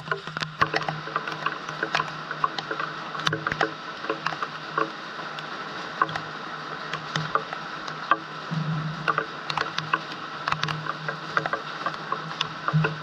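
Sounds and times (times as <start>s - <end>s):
rain pattering: 0.0s - 13.0s
steady hiss: 0.0s - 13.0s
low hum: 8.2s - 13.0s.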